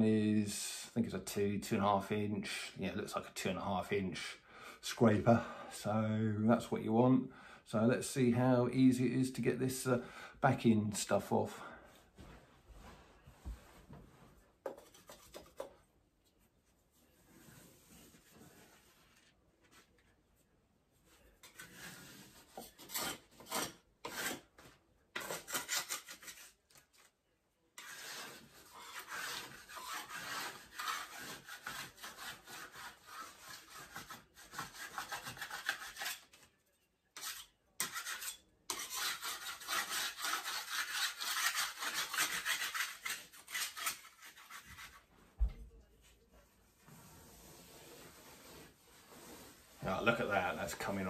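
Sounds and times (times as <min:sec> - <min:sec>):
scraper scraping wallpaper: 0:17.0 - 0:20.0, 0:21.1 - 0:27.1, 0:27.8 - 0:36.4, 0:37.2 - 0:45.2, 0:46.7 - 0:51.0.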